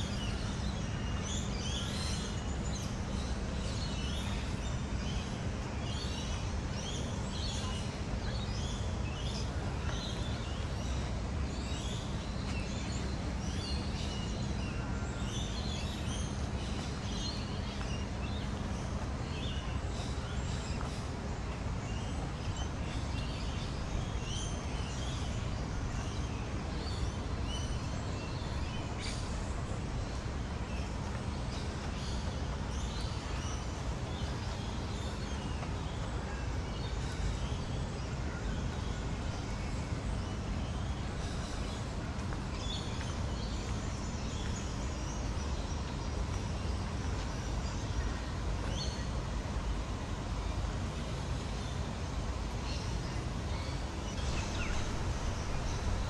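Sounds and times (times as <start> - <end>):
distant city rumble: 48.2 - 56.0.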